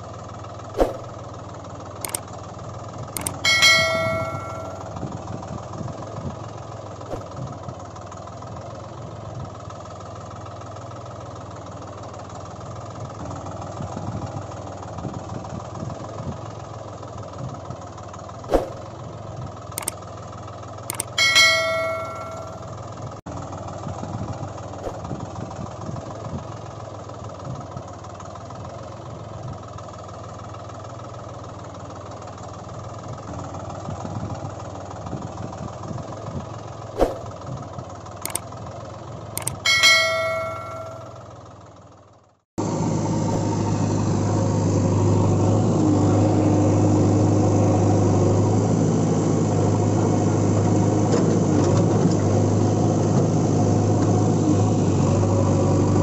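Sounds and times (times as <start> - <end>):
engine-like drone: 0.0 - 56.0
sharp click: 3.2 - 4.8, 20.9 - 22.6, 39.4 - 41.1
bell-like chime: 3.2 - 5.0, 20.9 - 22.7, 39.4 - 41.2.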